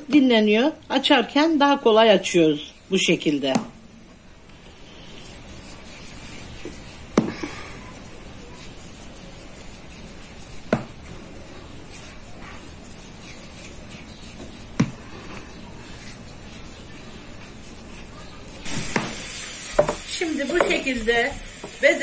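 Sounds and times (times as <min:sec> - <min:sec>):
dough balls knocking on wooden board: 0:07.1 - 0:07.5, 0:10.6 - 0:11.0, 0:14.4 - 0:15.0, 0:19.8 - 0:20.0
steady background hiss: 0:17.6 - 0:22.0.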